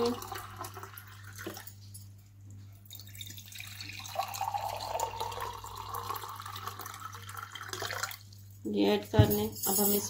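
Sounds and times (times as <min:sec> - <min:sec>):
water pouring into a glass: 0:00.0 - 0:01.8, 0:02.8 - 0:08.5.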